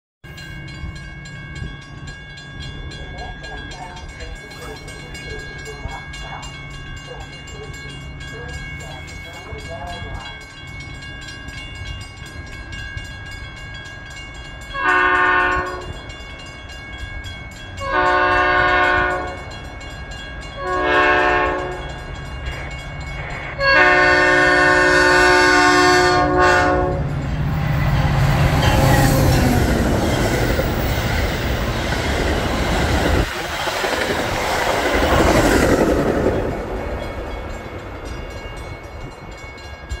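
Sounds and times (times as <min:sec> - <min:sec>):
train rumble and wheel clatter: 0:00.2 - 0:40.0
locomotive air horn: 0:14.8 - 0:16.0, 0:17.8 - 0:19.5, 0:20.6 - 0:21.9, 0:23.6 - 0:27.2.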